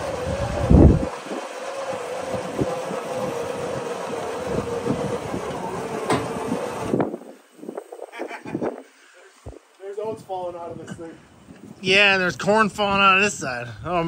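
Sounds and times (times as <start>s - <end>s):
winch whine: 0.0s - 8.0s
flatbed scraping and clattering: 1.9s - 7.0s.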